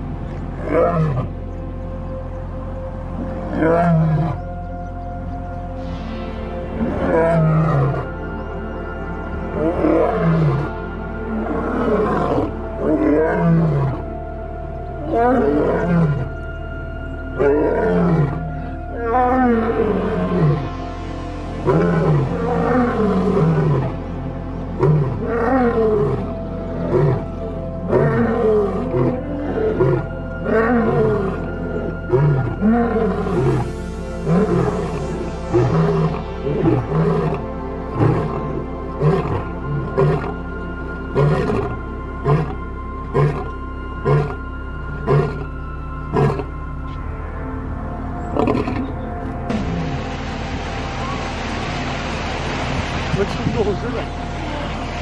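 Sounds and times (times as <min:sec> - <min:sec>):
background music: 0:00.0 - 0:55.0
lion roaring: 0:00.6 - 0:01.4, 0:03.2 - 0:04.6, 0:06.8 - 0:08.2, 0:09.5 - 0:14.1, 0:15.0 - 0:16.3, 0:17.4 - 0:20.7, 0:21.6 - 0:24.0, 0:24.7 - 0:33.6, 0:34.2 - 0:40.4, 0:41.1 - 0:45.5, 0:46.1 - 0:46.5, 0:48.3 - 0:50.0.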